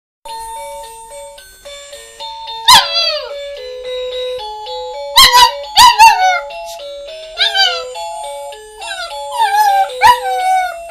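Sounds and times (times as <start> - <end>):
puppy howling: 2.7 - 3.4, 5.2 - 6.5, 7.4 - 8.0, 8.8 - 10.9.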